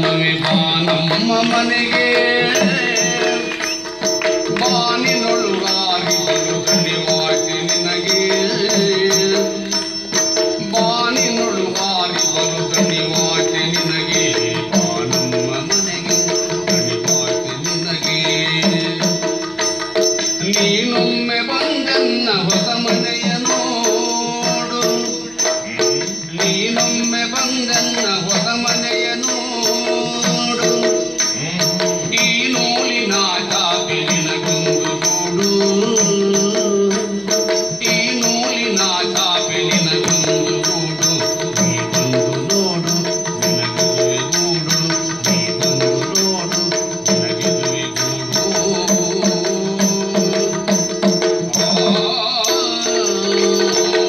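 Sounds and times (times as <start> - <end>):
high jingling beat: 0.0 - 54.0
person singing: 0.0 - 54.0.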